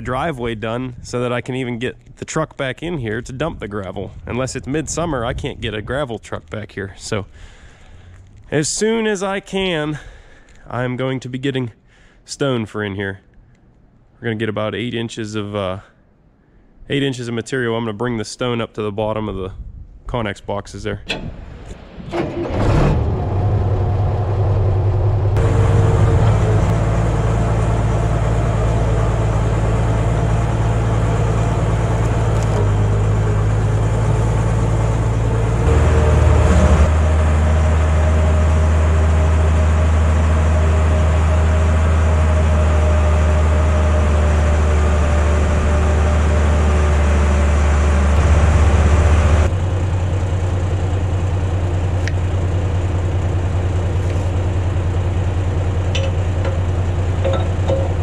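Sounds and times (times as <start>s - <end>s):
heavy vehicle engine running: 21.1s - 58.0s.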